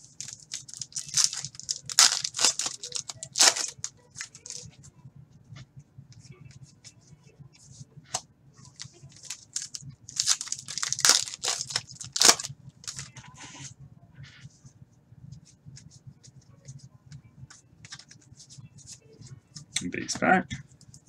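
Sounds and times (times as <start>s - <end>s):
cards being handled: 0.1s - 4.6s, 8.1s - 13.6s, 17.5s - 19.8s
wrapper tearing and crinkling: 0.1s - 4.6s, 8.8s - 13.1s.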